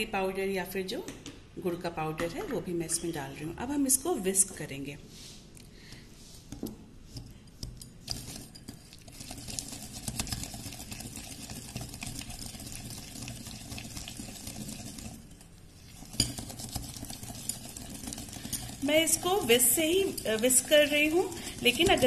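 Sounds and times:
wire whisk scraping glass bowl: 7.2s - 22.0s.

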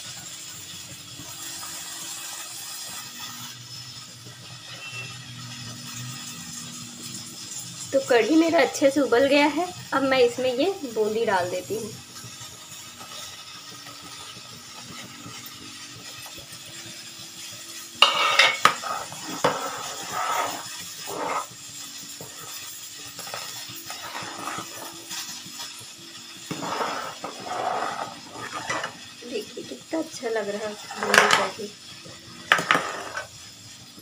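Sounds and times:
metal spoon scraping pot: 18.0s - 21.6s, 22.2s - 25.0s, 26.5s - 29.0s, 30.7s - 31.6s, 32.5s - 33.3s.

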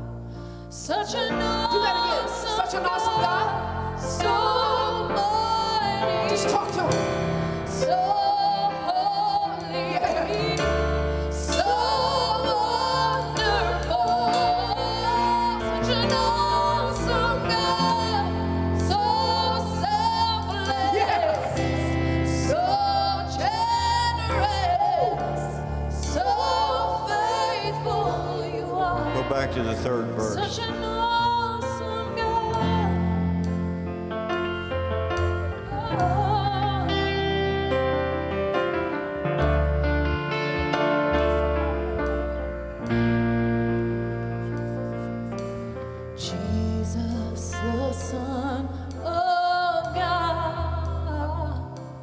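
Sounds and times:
person singing with vibrato: 0.8s - 33.4s.

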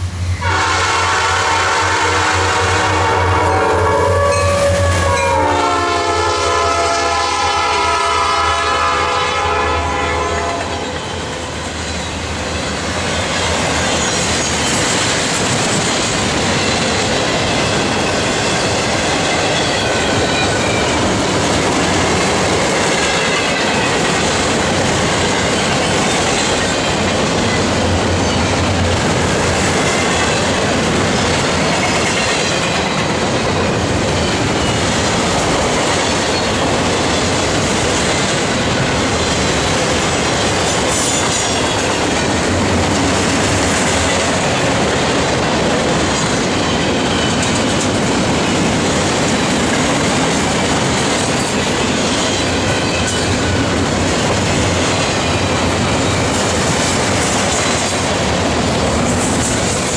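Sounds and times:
locomotive air horn: 0.4s - 11.0s
freight cars rumbling and clacking: 10.9s - 59.9s.

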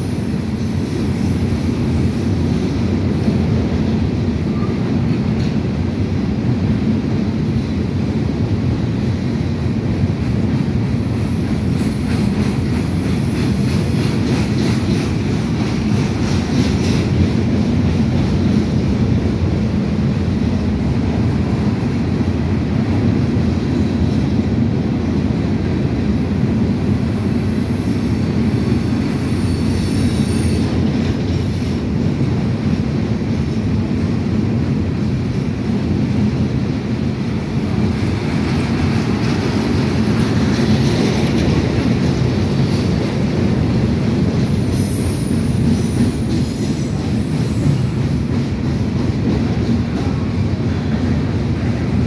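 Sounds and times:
train wheels rumbling on rails: 0.0s - 52.0s
faint high wheel squeal: 29.3s - 30.7s.

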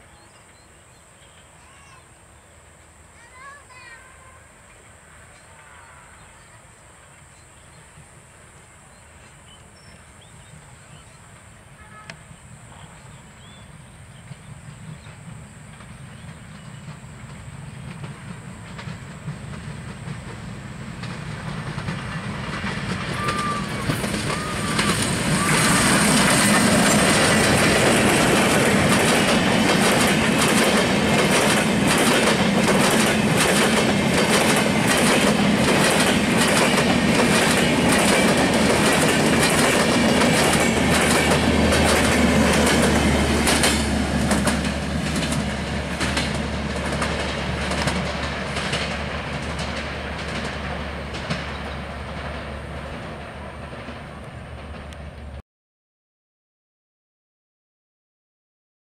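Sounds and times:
train passing: 0.0s - 55.4s
wheels clattering over rail joints: 15.7s - 55.3s.

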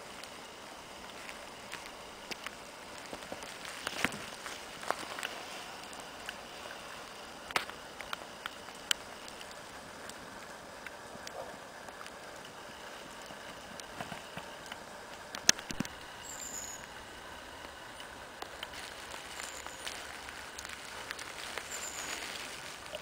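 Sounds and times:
footsteps through leaf litter: 2.9s - 6.2s, 18.4s - 23.0s.

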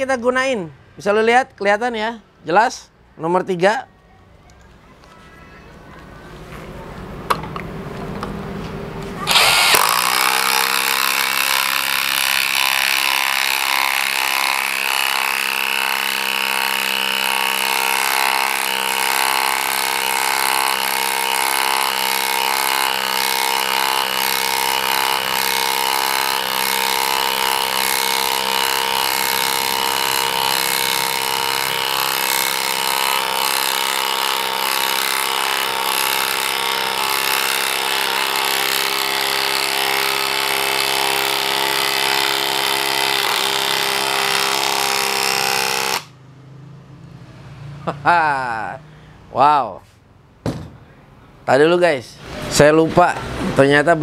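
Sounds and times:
impact driver hammering screw: 9.3s - 46.1s.

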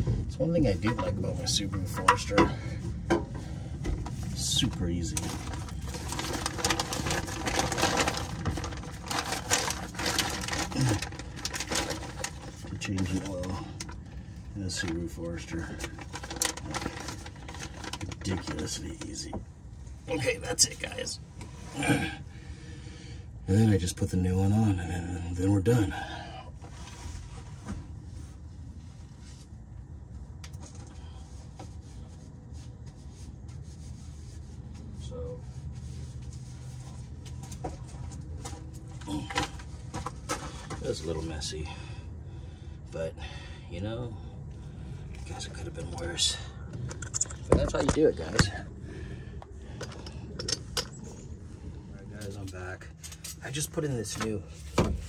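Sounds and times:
low steady hum: 0.0s - 55.0s
plastic bag crinkling: 5.1s - 13.6s, 15.8s - 18.5s.

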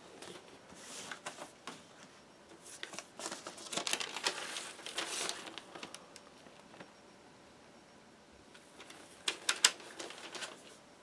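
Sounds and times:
paper sleeve rustling: 2.6s - 6.1s, 8.8s - 10.8s.

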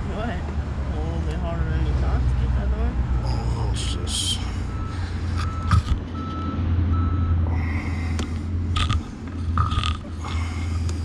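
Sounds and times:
low engine rumble: 0.0s - 11.0s
backup alarm beeping: 3.2s - 7.4s
sharp metallic clicks: 8.2s - 10.1s.

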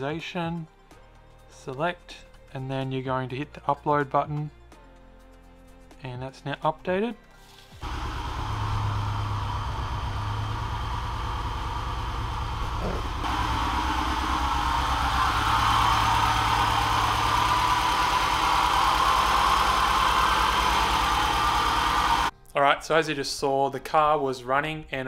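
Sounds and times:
car engine running: 7.8s - 22.3s.

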